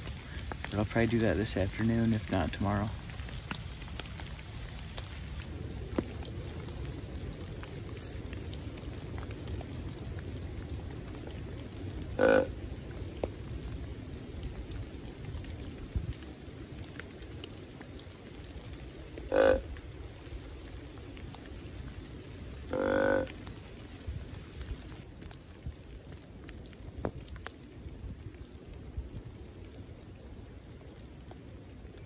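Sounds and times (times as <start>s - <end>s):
deer call grunts: 12.2s - 12.5s, 19.3s - 19.6s, 22.7s - 23.3s.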